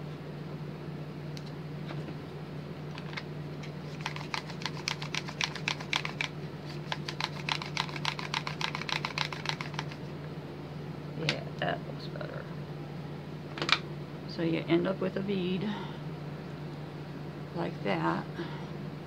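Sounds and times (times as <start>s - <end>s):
plastic bead roller clicking: 6.9s - 10.0s.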